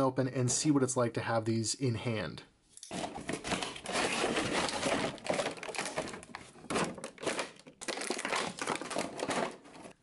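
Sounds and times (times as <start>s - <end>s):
plastic packaging crinkling: 2.9s - 10.0s.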